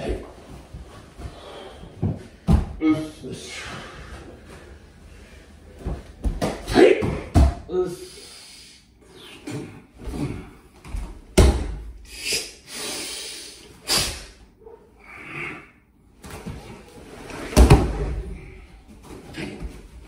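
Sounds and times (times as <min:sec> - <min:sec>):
bodies thudding on mat: 0:02.0 - 0:02.8, 0:05.8 - 0:07.7, 0:16.2 - 0:18.3.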